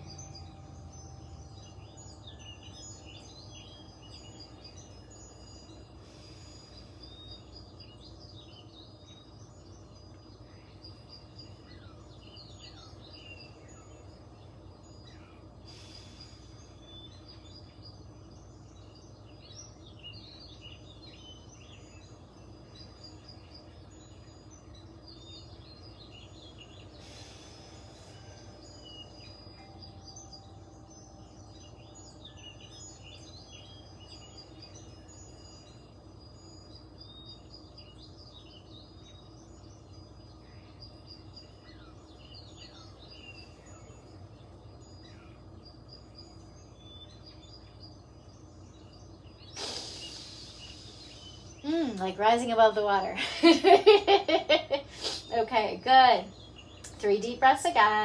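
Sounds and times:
birds chirping faintly: 0.0 - 58.0
steady low hum: 0.0 - 58.0
brief hiss: 49.6 - 51.2, 55.0 - 55.3.

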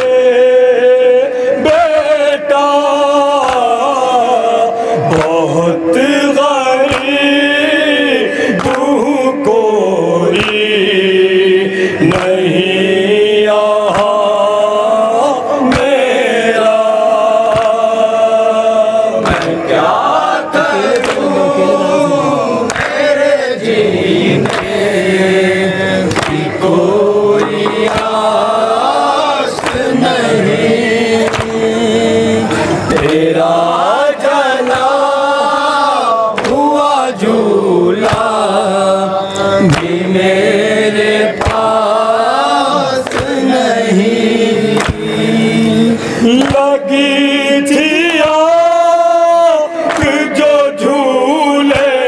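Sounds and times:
man singing a lament: 0.0 - 52.0
men chanting: 0.0 - 52.0.

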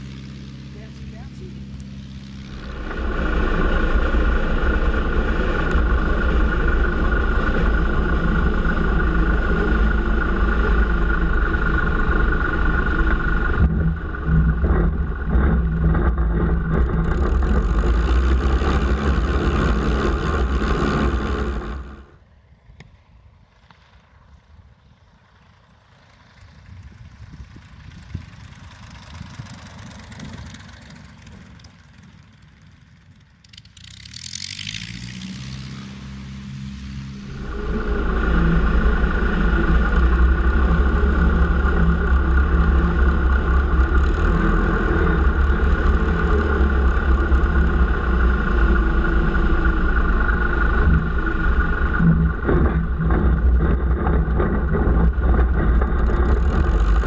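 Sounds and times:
distant light aircraft engine: 0.0 - 57.0
light aircraft engine: 0.0 - 57.0
wheels bumping on grass: 2.3 - 22.2, 37.4 - 57.0.

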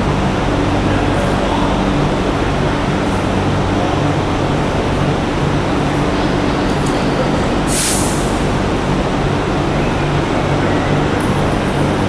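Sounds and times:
workshop machinery hum: 0.0 - 12.0
short hiss of air: 7.7 - 8.4.

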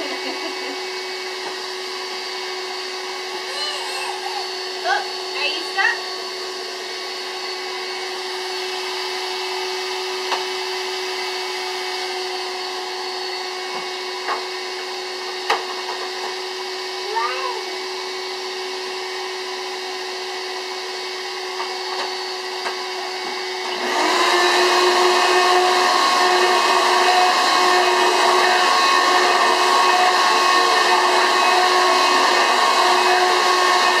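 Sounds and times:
vacuum cleaner running: 0.0 - 34.0.

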